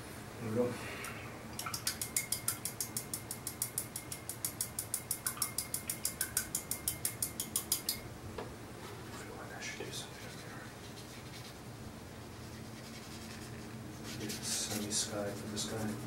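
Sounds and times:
brush tapping against glass: 1.6 - 8.0.

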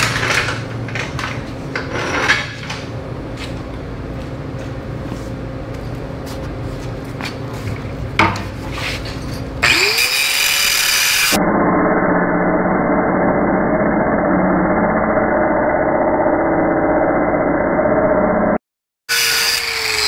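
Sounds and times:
angle grinder cutting metal: 9.6 - 11.4, 19.1 - 20.0.

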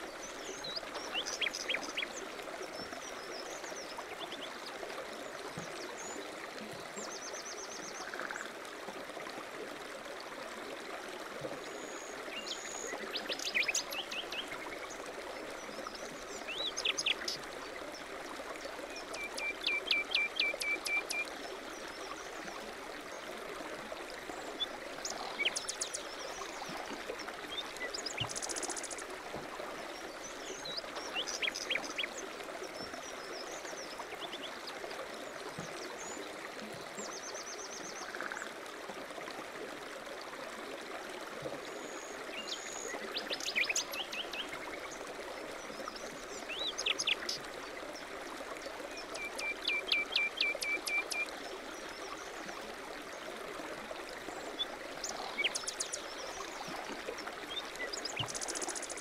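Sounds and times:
songbirds chirping: 0.0 - 8.5, 24.2 - 38.2
stream babbling: 0.0 - 59.0.

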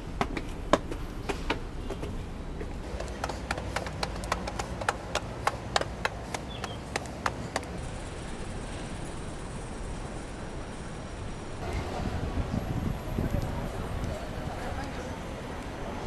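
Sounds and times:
road traffic rumble: 0.0 - 16.0.

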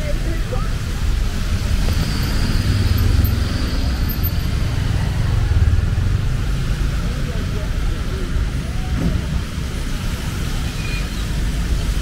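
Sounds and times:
vehicle engines rumbling: 0.0 - 12.0.

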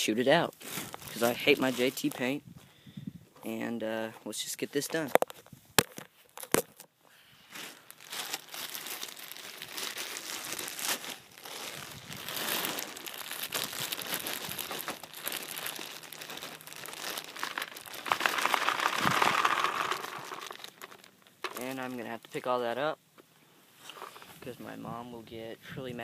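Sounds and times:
paintballs rattling into hopper: 11.5 - 22.2.

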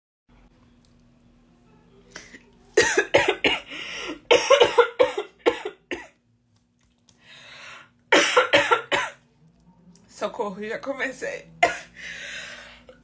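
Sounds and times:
woman coughing: 2.8 - 6.2, 8.1 - 9.2, 11.6 - 12.0.

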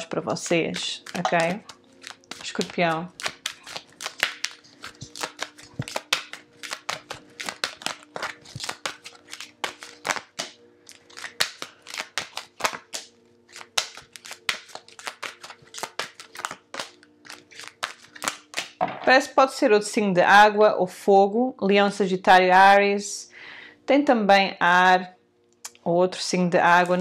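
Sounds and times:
cards shuffling and dealt: 0.4 - 19.1.

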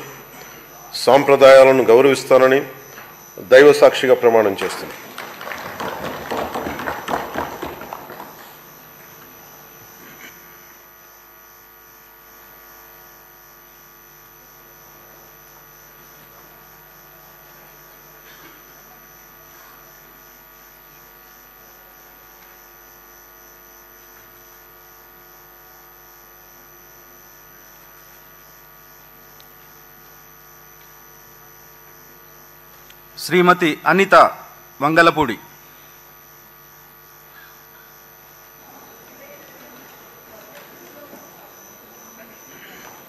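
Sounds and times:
electrical mains hum: 0.0 - 43.0
applause: 4.4 - 8.7.

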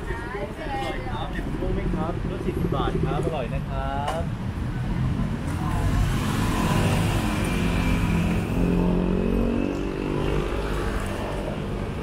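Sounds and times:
traffic hum: 0.0 - 12.0
vehicle engine passing by: 4.8 - 12.0.

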